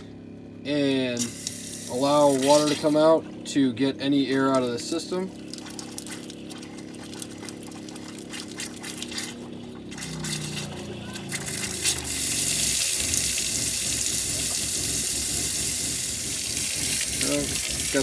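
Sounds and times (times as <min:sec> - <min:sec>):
water pump humming: 0:00.0 - 0:18.0
faucet running into metal sink: 0:11.3 - 0:18.0.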